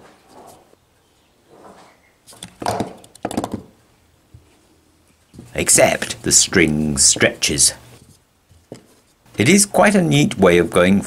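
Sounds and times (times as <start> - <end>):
wooden knocks and clatter: 1.5 - 3.8.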